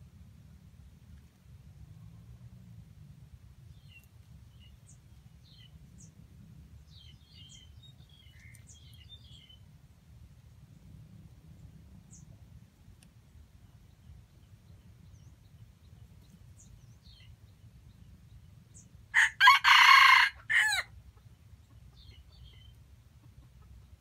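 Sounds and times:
small birds chirping: 3.6s - 9.7s, 10.4s - 19.1s, 21.1s - 24.0s
rooster crowing: 19.1s - 20.9s.

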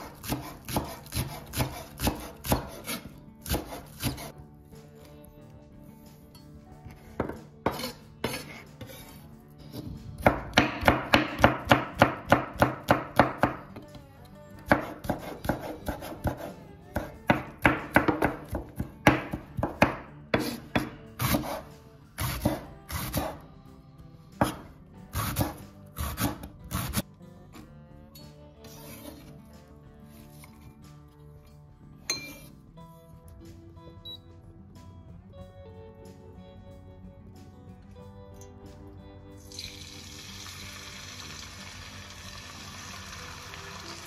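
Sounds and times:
knife chopping on wooden board: 0.0s - 4.3s, 7.1s - 9.1s, 9.8s - 13.6s, 14.7s - 23.4s, 24.4s - 27.0s.

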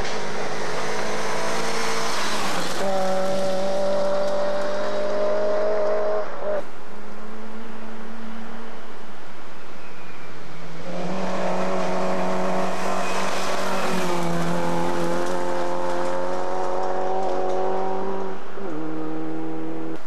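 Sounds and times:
rally car engine revving: 0.0s - 6.6s, 10.8s - 20.0s.

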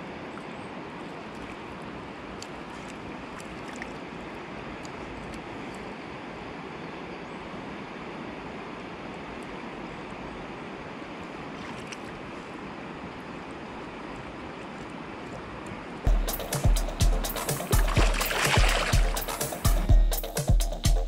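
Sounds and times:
river running over stones: 0.0s - 19.9s
faint ticks: 2.4s - 3.9s.

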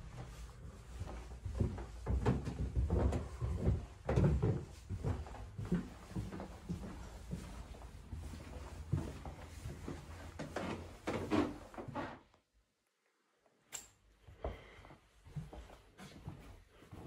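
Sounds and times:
footsteps: 0.0s - 12.1s, 14.3s - 17.0s
sharp click: 13.7s - 14.0s.

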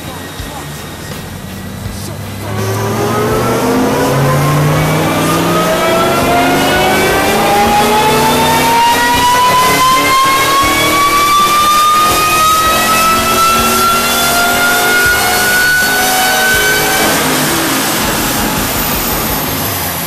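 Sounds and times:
car engine revving: 0.0s - 20.0s
supercharger whine: 0.0s - 20.0s.

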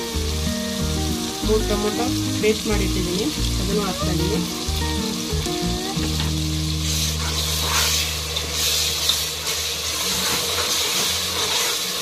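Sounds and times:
paste sizzling in hot oil: 0.0s - 12.0s
metal spoon scraping: 6.2s - 11.8s.

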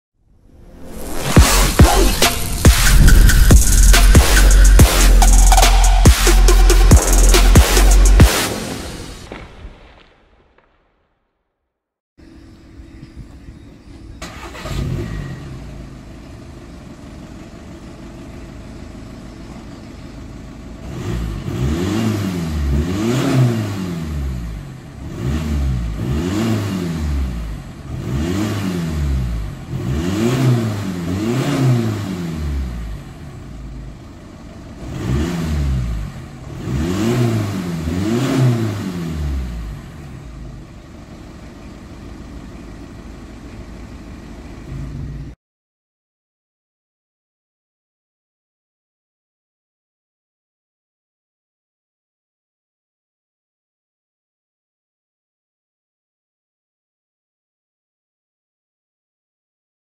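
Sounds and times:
diesel engine idling and revving: 1.0s - 9.2s, 12.2s - 45.4s.

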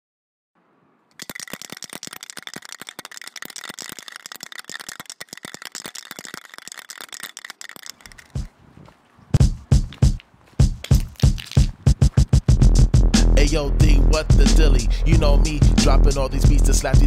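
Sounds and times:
spray can mixing ball rattling: 1.1s - 8.5s, 10.8s - 11.8s.

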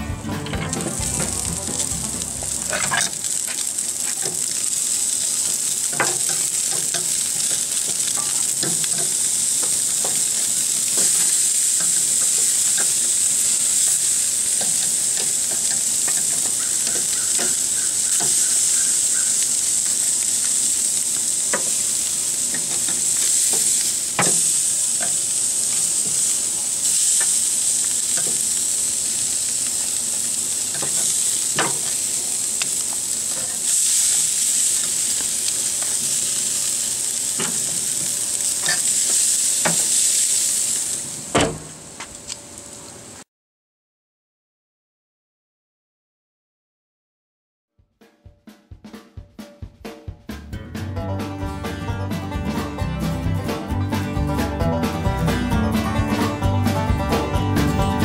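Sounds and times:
meat sizzling on a grill: 0.7s - 43.2s
metal tongs clicking on grate: 5.9s - 13.1s, 38.6s - 39.8s.

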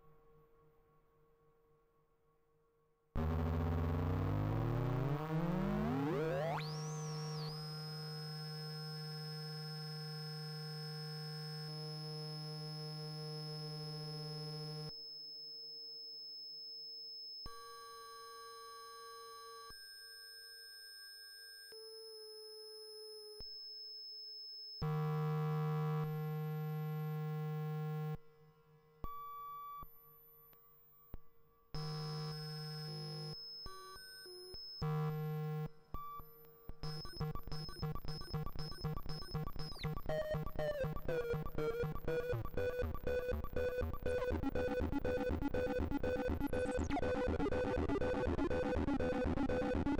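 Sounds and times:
synthesizer drone: 37.1s - 49.9s.

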